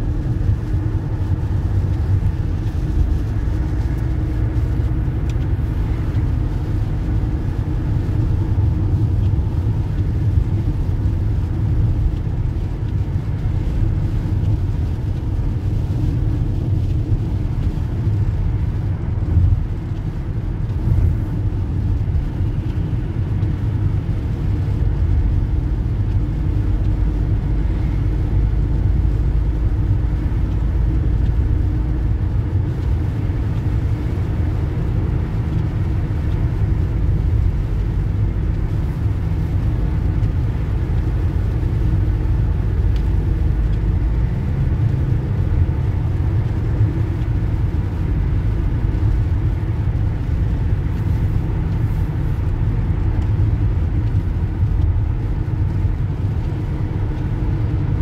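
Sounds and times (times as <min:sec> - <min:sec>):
car engine: 0:00.0 - 0:58.0
wet road noise: 0:00.0 - 0:58.0.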